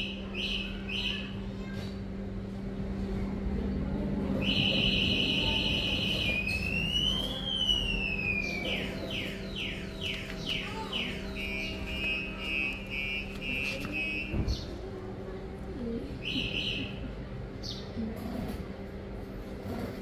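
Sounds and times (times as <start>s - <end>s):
electronic alarm siren tones: 4.4s - 14.5s.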